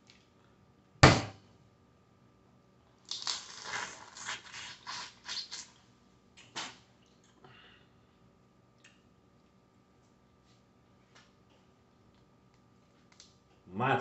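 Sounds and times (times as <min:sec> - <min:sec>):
crackling sucking eating sounds: 0:03.1 - 0:05.8.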